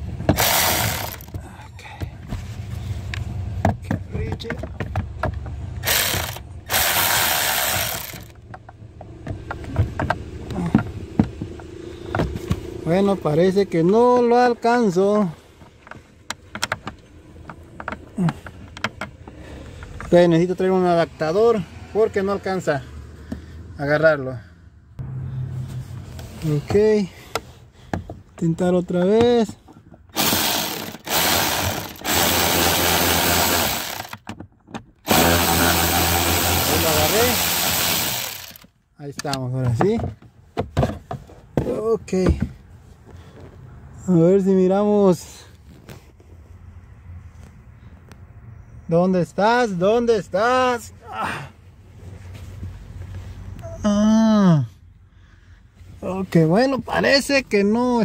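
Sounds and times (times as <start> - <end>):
cordless drill running: 0.3 - 1.3, 5.8 - 8.3, 30.2 - 34.2, 35.1 - 38.6.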